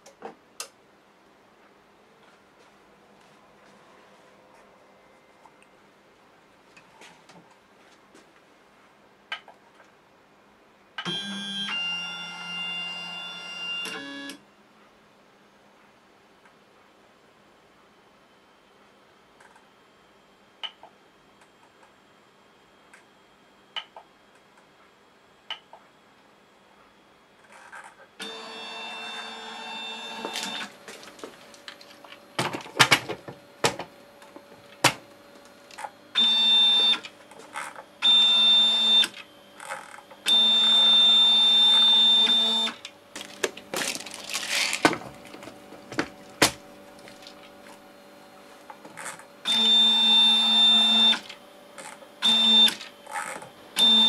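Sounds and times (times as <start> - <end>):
plastic boxes knocking and rattling: 43.2 - 47.4.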